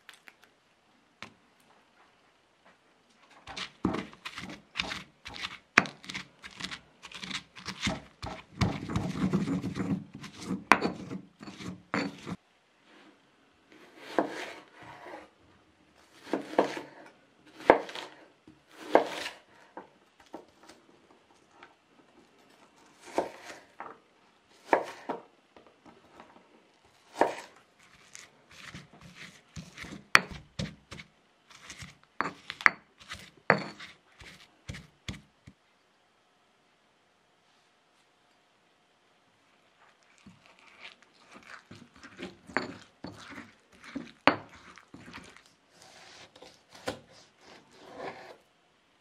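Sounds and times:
knife cutting onion on board: 3.5 - 12.4, 13.8 - 15.2, 16.0 - 19.5, 22.9 - 23.8, 24.6 - 25.2, 27.0 - 35.3, 40.5 - 48.4.

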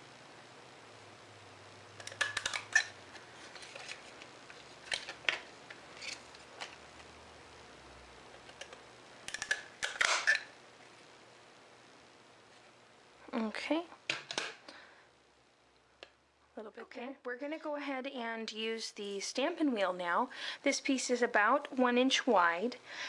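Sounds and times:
paper punch clicking and crunching: 8.4 - 10.5.

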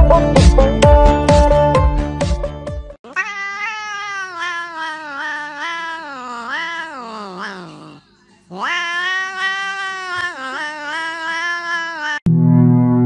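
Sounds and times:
cat meowing: 3.0 - 12.3.

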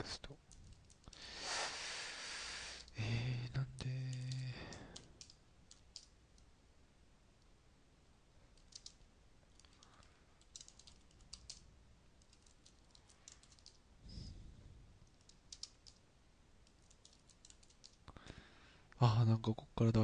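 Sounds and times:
keyboard typing: 4.0 - 6.5, 8.5 - 13.8, 15.0 - 16.0, 16.6 - 18.0.

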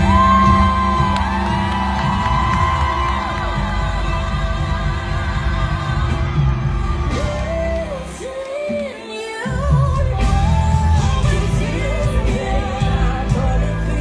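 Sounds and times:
heavy bass beat: 0.0 - 8.1
women singing: 0.0 - 14.0.

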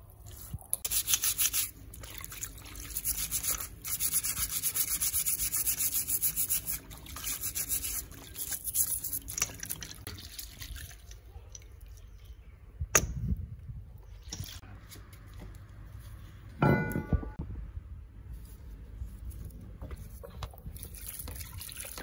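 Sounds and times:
sponge scrubbing metal parts: 0.4 - 10.9.

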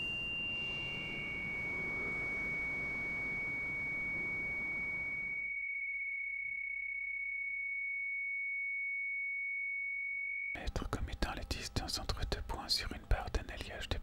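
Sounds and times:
high-pitched pure tone: 0.0 - 10.6.

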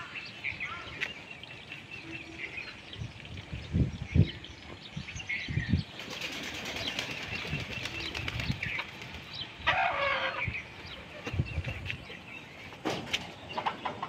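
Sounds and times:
chickens flapping wings: 6.0 - 9.3
chicken squawk: 9.6 - 10.4.

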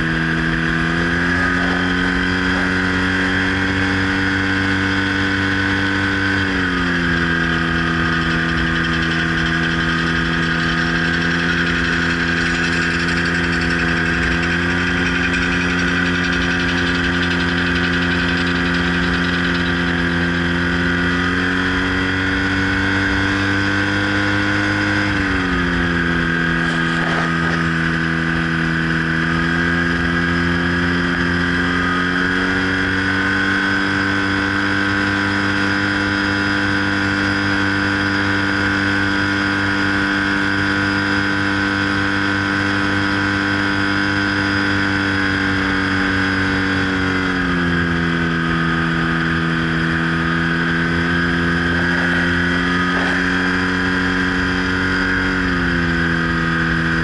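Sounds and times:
light aircraft engine running: 0.0 - 57.0.

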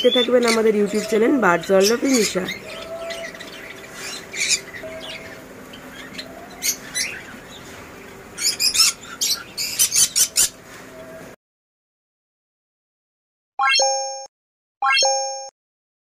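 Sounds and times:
shrill bird calls: 0.0 - 7.4, 8.4 - 10.6
birds squawking and chirping: 0.0 - 11.3.

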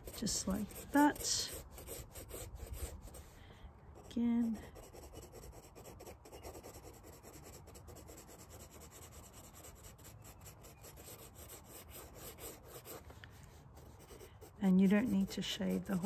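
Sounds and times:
pencil scratching on paper: 0.0 - 3.4, 4.0 - 13.1, 13.8 - 16.0.

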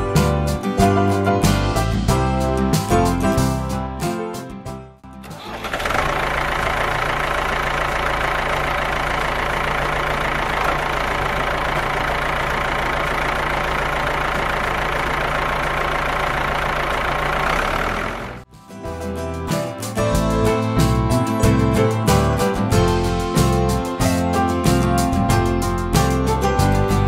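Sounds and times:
tractor engine idling: 5.1 - 18.5.

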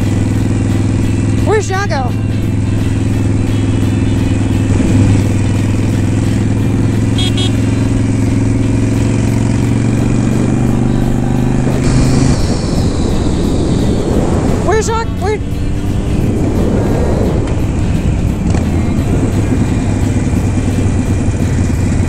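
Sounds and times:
motorcycle engine cruising: 0.0 - 22.0
wind noise: 10.0 - 21.6.

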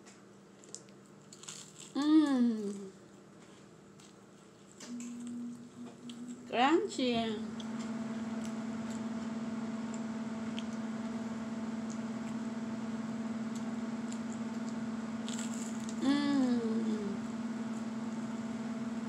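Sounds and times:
steady low hum: 0.0 - 19.0
person chewing crunchy toast: 0.5 - 2.0, 3.5 - 5.3, 13.5 - 16.0
person humming mmm: 1.9 - 3.0, 4.9 - 6.5, 15.8 - 17.4.

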